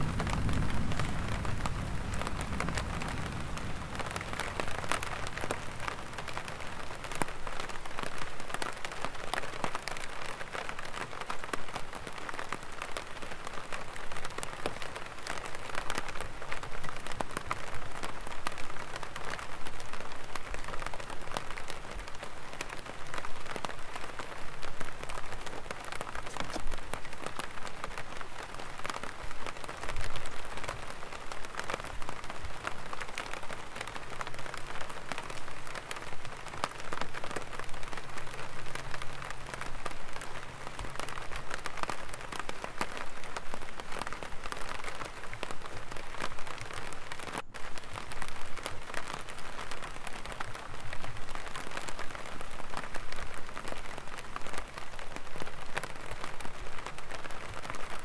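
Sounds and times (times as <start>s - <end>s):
rain on an umbrella: 0.0s - 58.0s.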